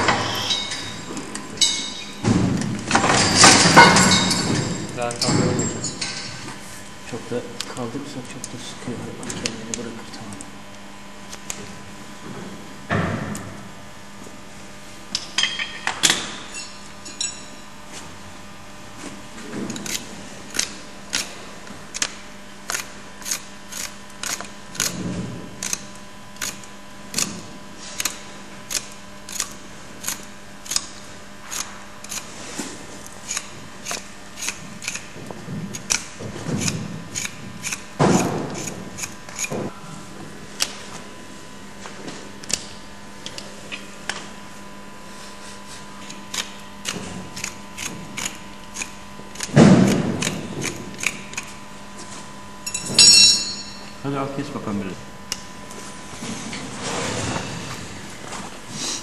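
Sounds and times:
hoof trimming tool clicks: 0:19.7 - 0:25.0, 0:25.6 - 0:27.4, 0:28.0 - 0:32.3, 0:33.0 - 0:39.6, 0:42.4 - 0:44.2, 0:46.0 - 0:51.6.

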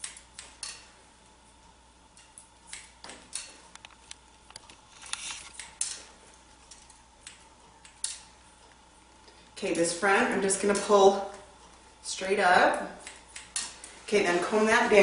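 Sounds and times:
scissors snipping hair: 0:00.0 - 0:00.9, 0:02.2 - 0:08.3, 0:12.7 - 0:13.9.

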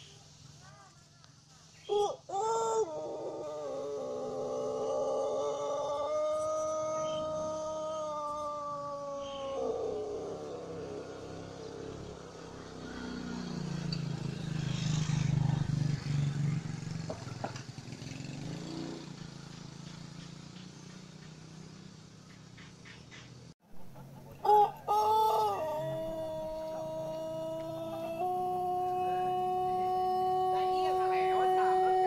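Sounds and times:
rooster crowing: 0:01.8 - 0:13.9, 0:24.3 - 0:32.0.

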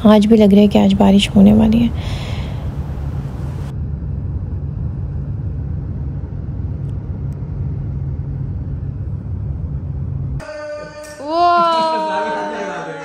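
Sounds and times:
car road and engine noise: 0:00.6 - 0:03.8.

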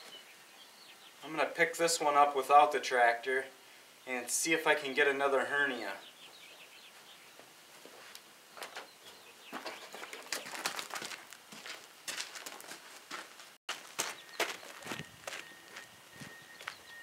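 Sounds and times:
wood slab scraping and crackling: 0:09.5 - 0:15.0.

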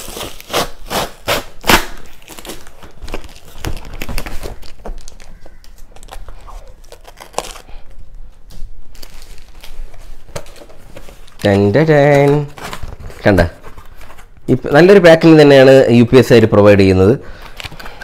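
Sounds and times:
cardboard ripping and crinkling: 0:00.0 - 0:07.8, 0:08.9 - 0:14.3.

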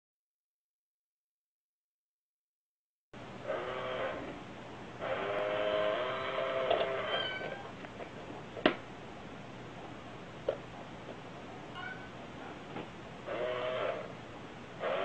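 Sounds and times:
cat meowing: 0:06.8 - 0:07.7, 0:11.8 - 0:12.1.

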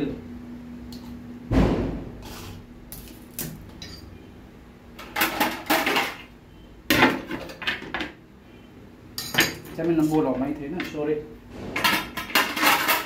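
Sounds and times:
kitchenware clattering on counter: 0:05.0 - 0:06.3, 0:09.2 - 0:11.0, 0:11.8 - 0:13.0.

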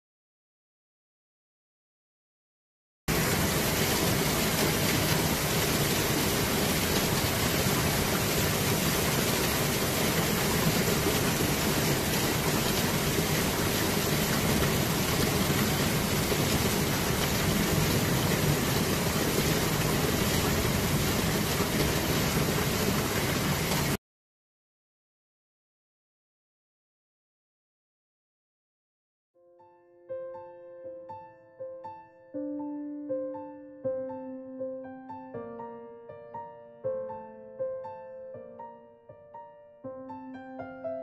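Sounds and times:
torrential rain pouring: 0:03.1 - 0:24.0.

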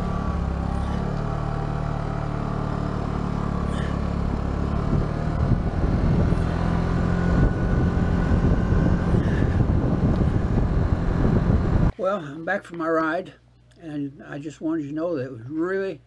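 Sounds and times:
scooter engine pulling away: 0:00.0 - 0:11.9
wind rushing over microphone: 0:04.3 - 0:11.9.

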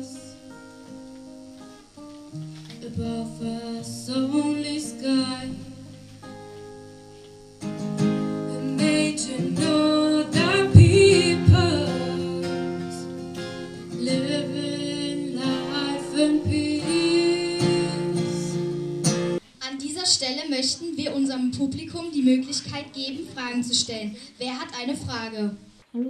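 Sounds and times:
strummed acoustic guitar: 0:00.0 - 0:19.4
women singing: 0:02.8 - 0:05.8, 0:08.5 - 0:13.1, 0:13.9 - 0:18.6
low thumps: 0:10.4 - 0:12.0.

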